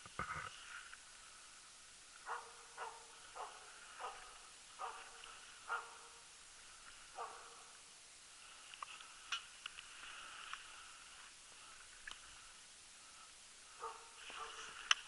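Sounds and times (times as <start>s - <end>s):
dog barking: 2.2s - 6.2s, 7.1s - 7.8s, 13.8s - 14.8s
faint sharp clicks: 8.7s - 9.9s, 12.0s - 12.3s, 14.2s - 15.0s.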